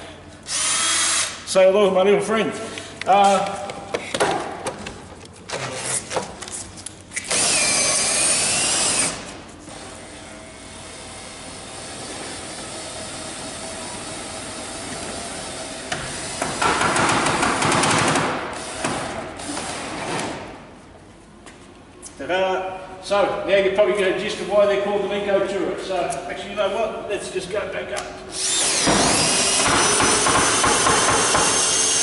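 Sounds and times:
cordless drill whining: 28.4 - 32.0.

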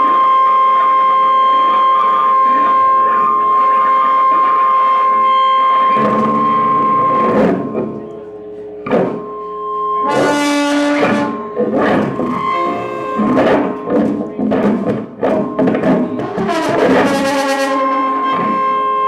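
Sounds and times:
amplified brass horn noise music: 9.9 - 19.0.

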